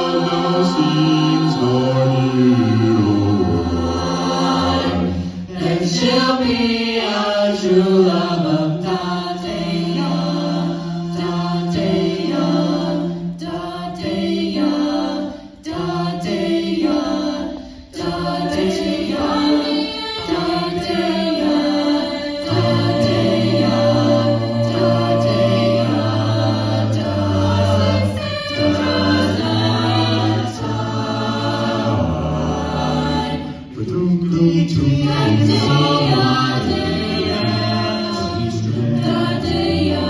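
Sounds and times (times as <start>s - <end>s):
vocal ensemble singing in harmony: 0.0s - 40.0s.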